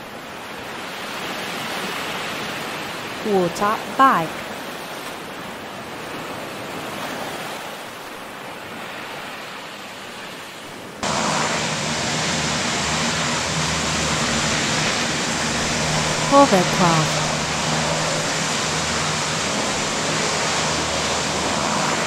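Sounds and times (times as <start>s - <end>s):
hovercraft engine and fan drone: 0.0s - 7.3s, 8.0s - 22.0s
rushing splashing water: 4.4s - 22.0s.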